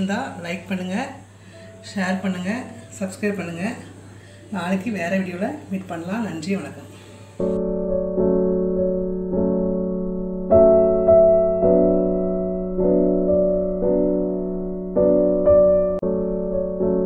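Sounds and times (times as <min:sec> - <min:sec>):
slow piano chords: 0:07.1 - 0:17.0.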